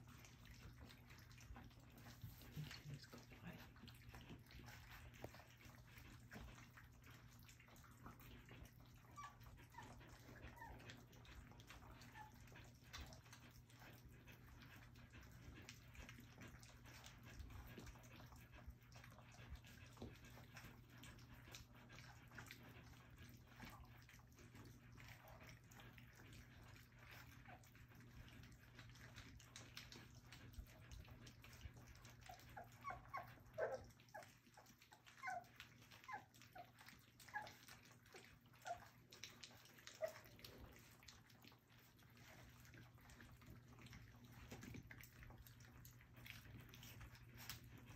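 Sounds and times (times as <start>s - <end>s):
puppies lapping food: 0.0s - 47.9s
puppy whimpers and squeaks: 8.0s - 13.2s, 32.0s - 40.8s.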